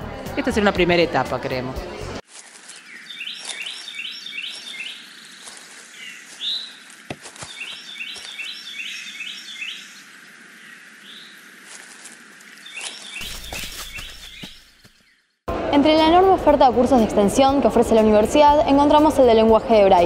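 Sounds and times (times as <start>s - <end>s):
bird chirping: 2.6s - 11.6s, 12.4s - 15.4s.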